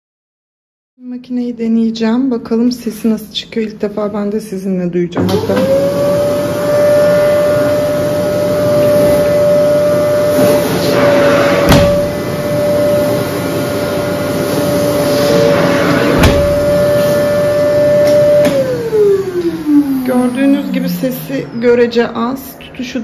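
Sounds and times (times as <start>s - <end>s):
vacuum cleaner whine: 5.2s - 22.1s
sharp knocks: 11.7s - 12.1s.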